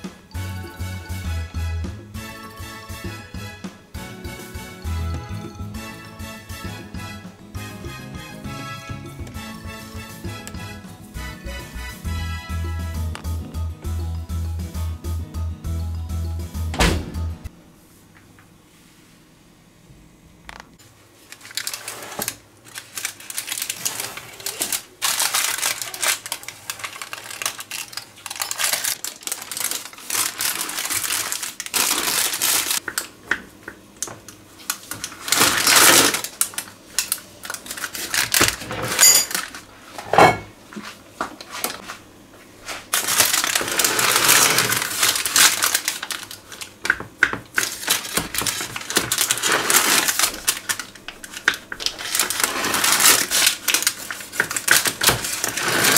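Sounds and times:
parchment paper crinkling: 21.2 - 32.8, 34.6 - 38.7, 42.7 - 55.9.

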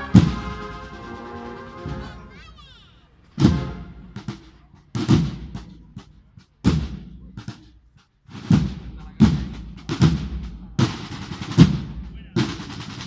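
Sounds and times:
heavy deep drum beats: 0.0 - 2.2, 3.4 - 13.0.

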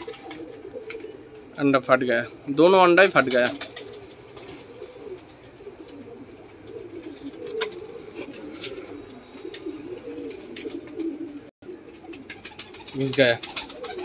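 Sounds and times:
pigeons cooing: 0.0 - 14.0.

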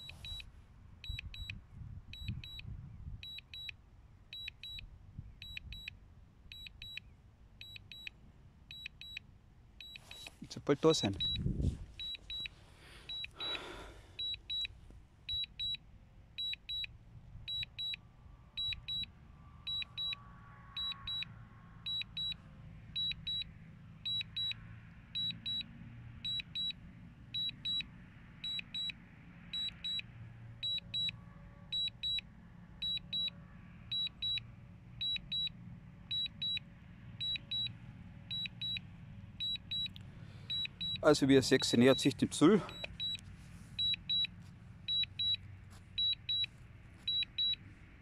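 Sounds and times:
high double beeps: 0.0 - 0.4, 10.9 - 11.4, 13.1 - 13.6, 40.5 - 43.2, 43.8 - 44.3, 46.0 - 46.5, 47.1 - 47.6.

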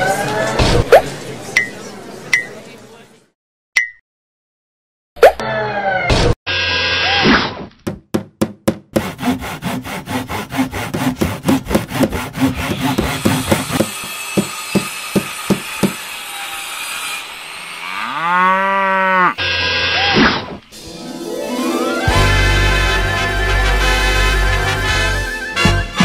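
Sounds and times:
sawing strokes: 8.9 - 17.9.

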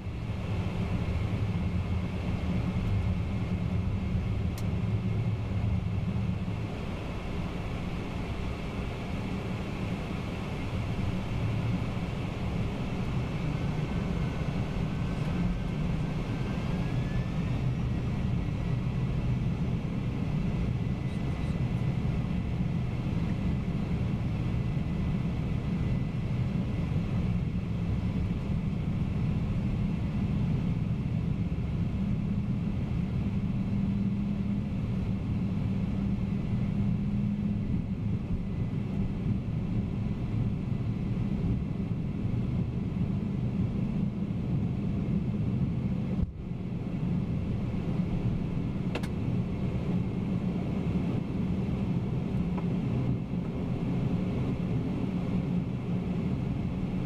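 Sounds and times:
jet engines rumbling: 0.0 - 57.0
click: 48.9 - 49.2.

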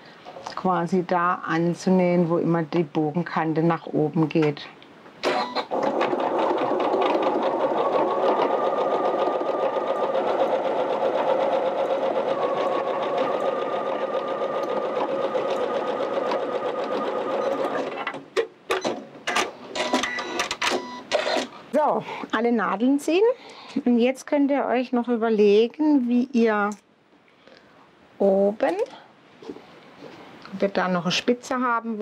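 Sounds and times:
sewing machine stitching: 5.3 - 18.2.

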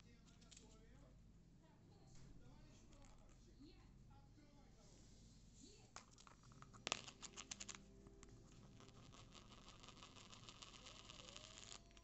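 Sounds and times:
lid rolling and rattling on rim: 6.3 - 12.0.

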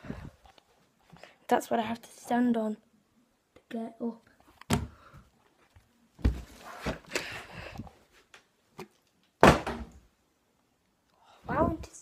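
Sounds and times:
loud thud: 9.4 - 9.9.

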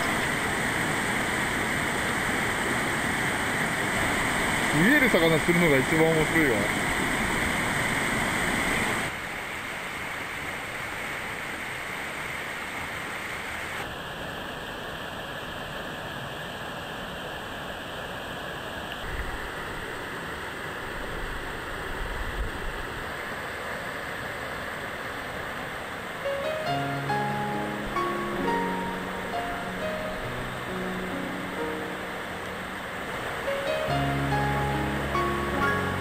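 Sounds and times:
river flowing over rocks: 0.0 - 36.0
music: 26.2 - 36.0.

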